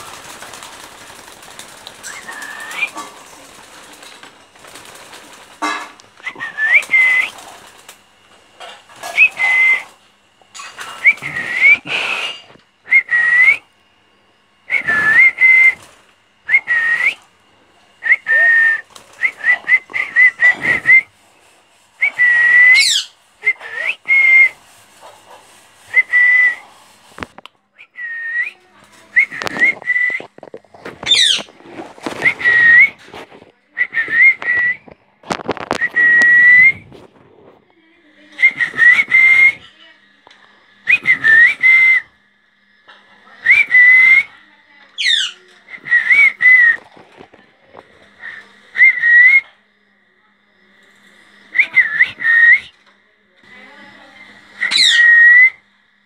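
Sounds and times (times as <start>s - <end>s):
parakeets whistling: 0.0s - 4.2s, 4.8s - 7.9s, 8.6s - 13.6s, 14.7s - 17.2s, 18.0s - 21.1s, 22.0s - 26.8s, 31.0s - 33.0s, 38.3s - 39.9s, 40.8s - 42.1s, 43.4s - 44.4s, 45.0s - 46.9s, 48.1s - 49.5s, 51.4s - 52.8s, 54.0s - 55.6s.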